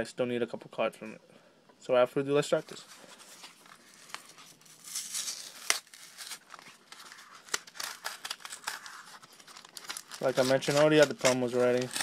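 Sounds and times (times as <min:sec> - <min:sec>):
plastic blister pack crinkling: 0:02.7 - 0:12.0.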